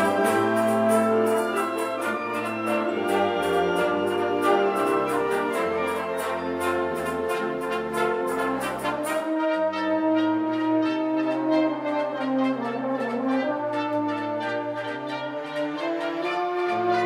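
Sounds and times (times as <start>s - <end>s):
brass chords: 0.0s - 17.0s.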